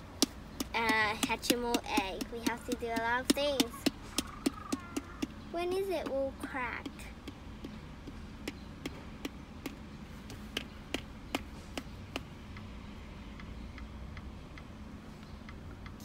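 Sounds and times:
fingertip tapping on plastic: 0.2 - 12.7.

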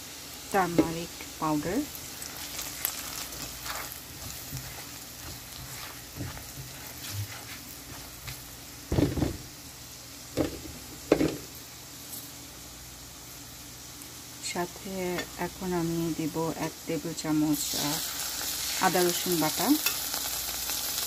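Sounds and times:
onions sizzling in hot oil: 0.0 - 21.0
spatula scraping a pan: 2.0 - 8.4.

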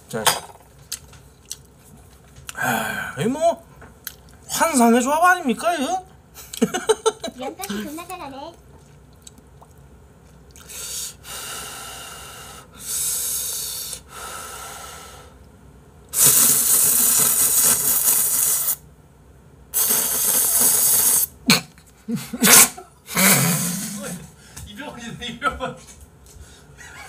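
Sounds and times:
noodles being slurped: 16.2 - 18.8, 19.8 - 21.3.

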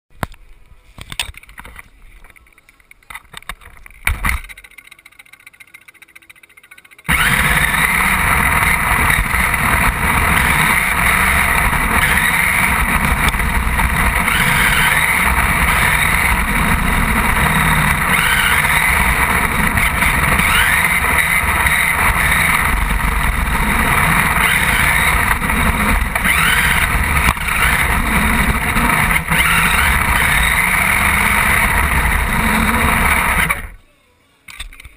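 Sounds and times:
radio-controlled car motor running: 2.2 - 34.9.

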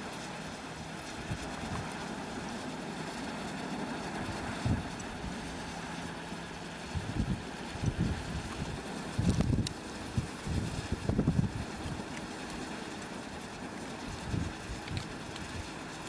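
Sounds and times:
wind turbine rotor whistling: 0.0 - 16.0
wind buffeting microphone: 3.8 - 5.4, 6.8 - 12.1, 14.0 - 15.8.

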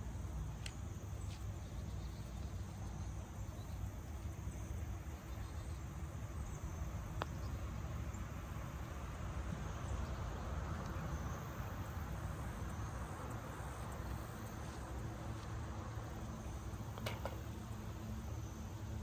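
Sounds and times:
insects chirring: 0.0 - 19.0
low outdoor rumble: 0.0 - 19.0
putter striking golf ball: 16.9 - 17.5.

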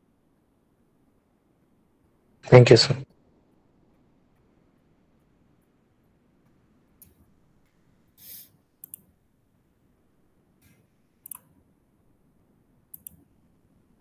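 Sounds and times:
computer mouse clicks: 7.0 - 7.2, 8.2 - 9.1, 10.6 - 11.5, 12.9 - 13.3.

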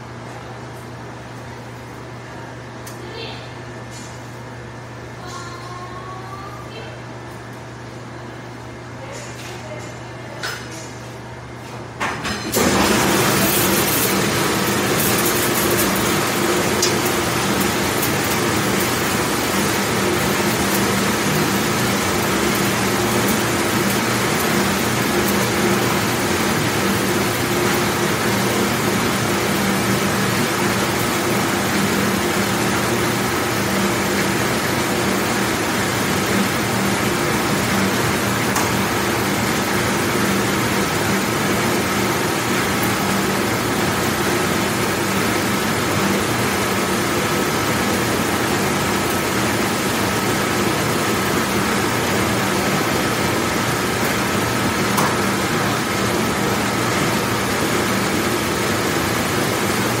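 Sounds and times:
dishwasher washing noise: 9.0 - 60.0
motor hum: 12.6 - 60.0.

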